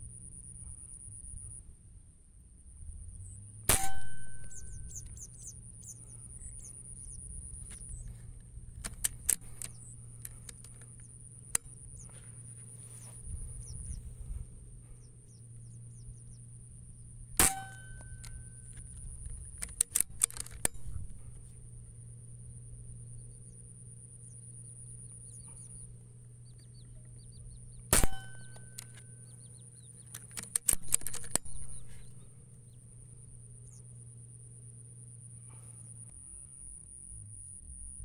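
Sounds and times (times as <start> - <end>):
high insect drone: 2.8 - 38.0
rifle shots with metallic ring: 3.7 - 5.2, 17.4 - 19.0, 27.9 - 29.5, 30.4 - 32.3
small clicks: 7.6 - 13.2, 17.4 - 21.4, 26.5 - 32.3.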